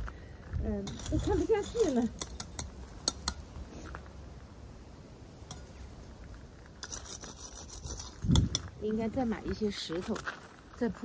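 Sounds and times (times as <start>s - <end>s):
gravel stones clicking: 0.0s - 4.6s, 5.4s - 11.0s
faint low outdoor rumble: 0.0s - 11.0s.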